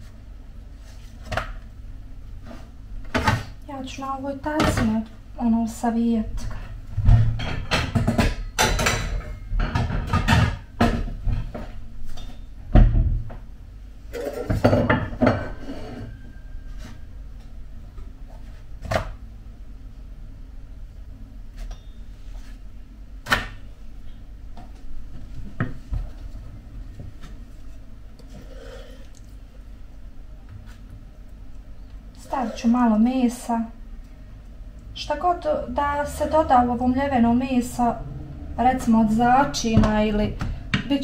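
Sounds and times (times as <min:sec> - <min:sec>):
steady low hum: 0:00.0 - 0:41.0
pans and utensils clattering: 0:07.1 - 0:12.5, 0:14.1 - 0:16.2.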